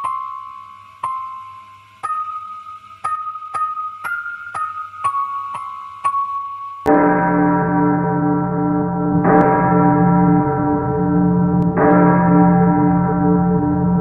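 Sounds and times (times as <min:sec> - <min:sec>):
deep bell tolling: 0:06.9 - 0:14.0.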